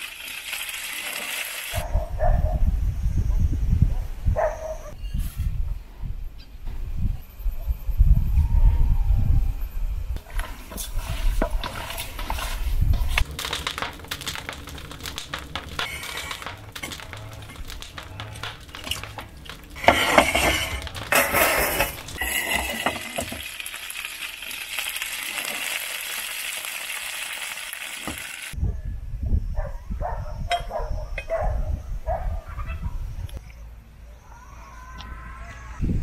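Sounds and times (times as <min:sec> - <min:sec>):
chicken sizzling in a pan: 0:00.0 - 0:01.8, 0:10.4 - 0:28.6
chicken stirred in metal bowl: 0:10.3 - 0:23.4
clicks and knocks: 0:13.0 - 0:23.4.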